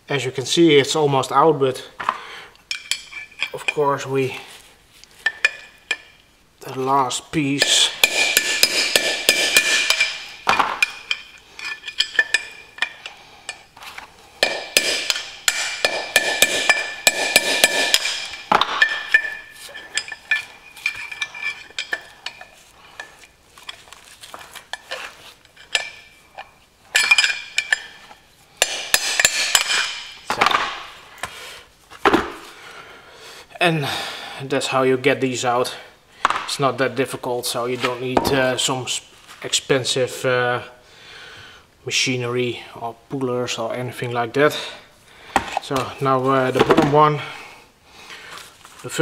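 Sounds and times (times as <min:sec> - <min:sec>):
hammer striking metal with ringing: 0:07.6 - 0:11.0, 0:14.4 - 0:19.5, 0:28.6 - 0:30.2.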